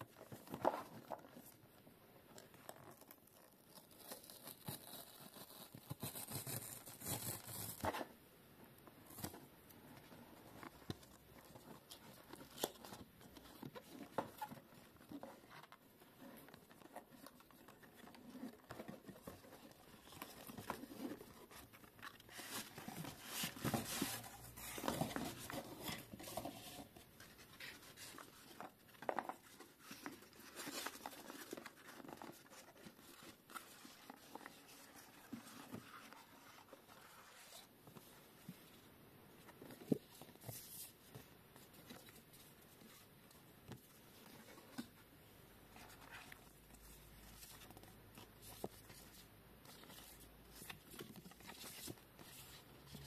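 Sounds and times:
box rustling and tearing: 0:10.8 - 0:37.6.

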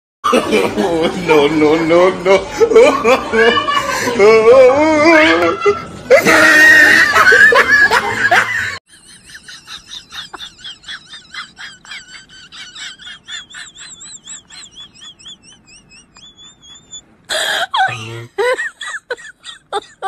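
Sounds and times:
loud voices and laughter: 0:00.2 - 0:17.1
animal high-pitched chirping: 0:14.7 - 0:17.0.

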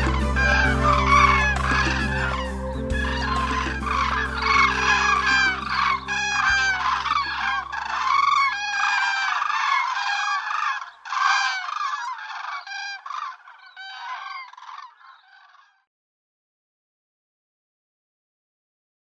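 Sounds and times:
low notes of music: 0:00.0 - 0:09.2
cranes calling: 0:00.0 - 0:15.9.

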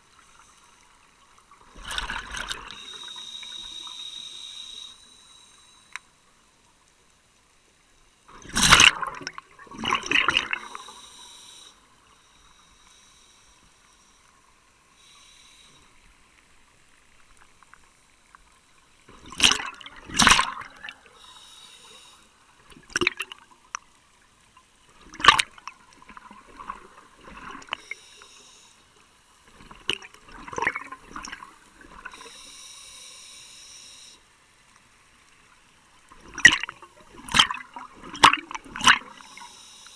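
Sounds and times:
regulator inhalation hiss: 0:02.6 - 0:06.0, 0:10.6 - 0:16.4, 0:21.0 - 0:22.5, 0:27.6 - 0:29.0, 0:32.0 - 0:34.3, 0:39.1 - 0:39.9
bubbles bursting underwater: 0:08.4 - 0:10.6, 0:19.3 - 0:20.9.

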